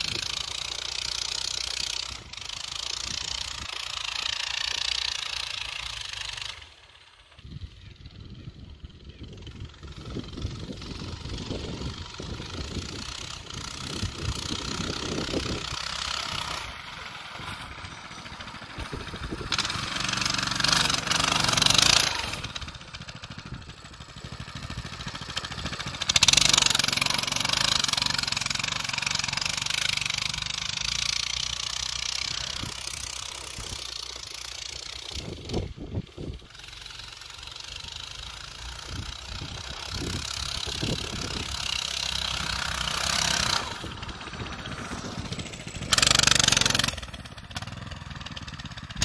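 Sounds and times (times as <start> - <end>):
minibike engine revving: 0.0 - 49.0.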